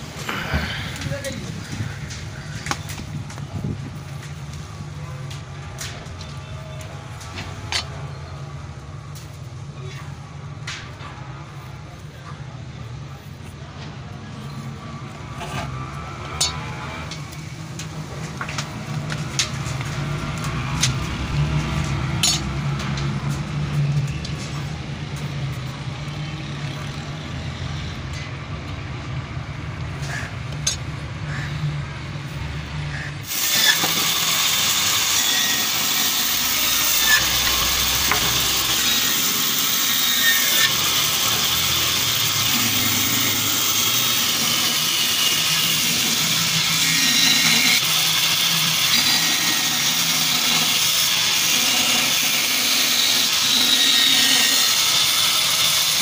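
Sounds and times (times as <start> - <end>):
band saw cutting wood: 14.6 - 23.6, 33.0 - 56.0.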